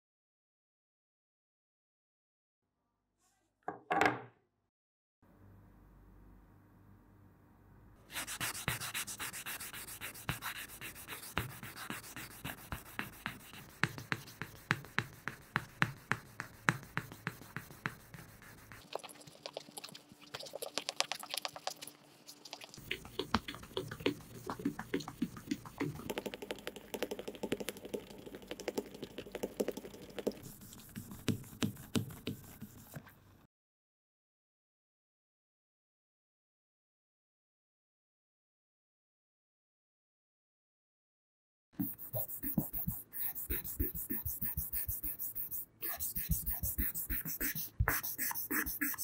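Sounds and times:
stone rubbing on sandpaper: 8.1s - 18.9s, 30.4s - 33.0s, 41.8s - 49.0s.

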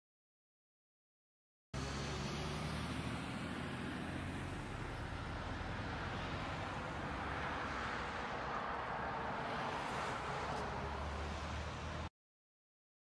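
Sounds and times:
car engine and road noise: 1.8s - 12.1s.

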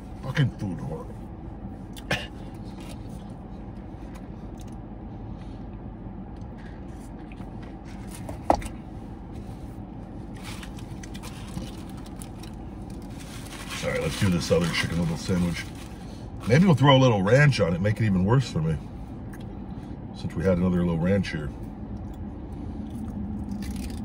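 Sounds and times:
parked car engine hum: 0.0s - 24.0s
paper food wrapper rustling: 10.3s - 16.6s.

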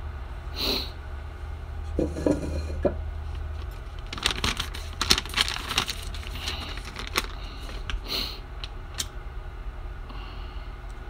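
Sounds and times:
steady low hum: 0.0s - 11.0s
paper rustling over metal tin: 3.6s - 8.1s.

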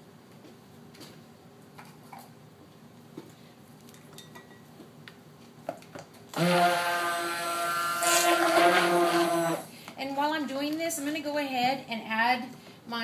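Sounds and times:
stick blender whining: 6.3s - 9.7s.

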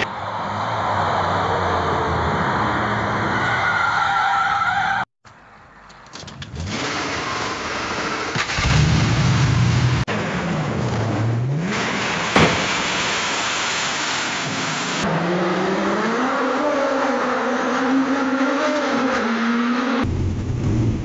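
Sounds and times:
race car engine: 6.2s - 21.0s
car crash impact: 11.8s - 14.8s
engine dipping and rising in pitch: 13.0s - 21.0s.

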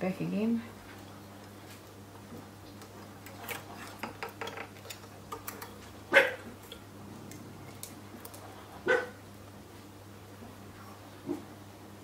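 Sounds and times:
dog bark: 6.1s - 6.5s, 8.8s - 9.2s.

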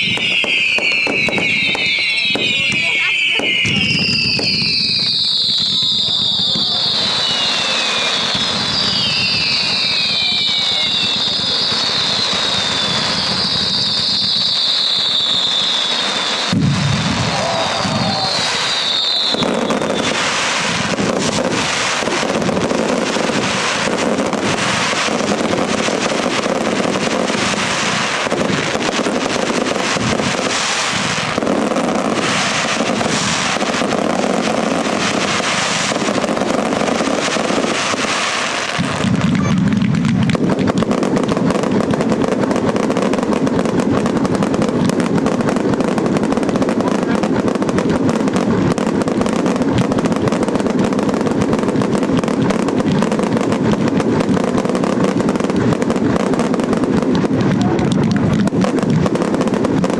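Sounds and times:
firework whistles: 0.0s - 57.9s
fireworks bangs and crackles: 0.0s - 59.9s.

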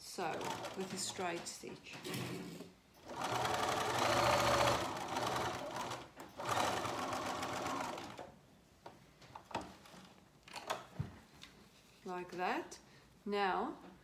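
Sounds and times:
sewing machine stitching: 0.2s - 1.2s, 3.0s - 8.2s.

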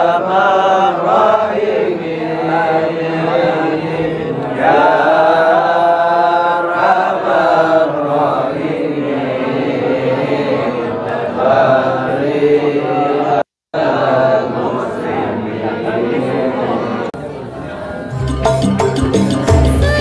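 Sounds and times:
men chanting in unison: 0.0s - 16.8s.

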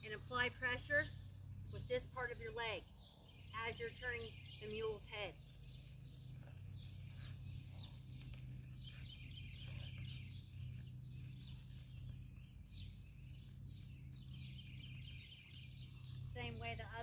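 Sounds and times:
birds chirping: 0.0s - 17.0s
steady low hum: 0.0s - 17.0s.

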